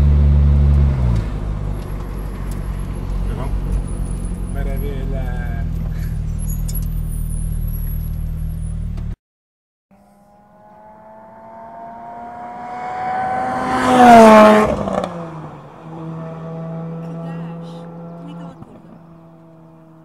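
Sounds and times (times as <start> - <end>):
car engine droning in cabin: 0.0 - 9.2, 9.9 - 20.0
race car passing by: 10.0 - 20.0.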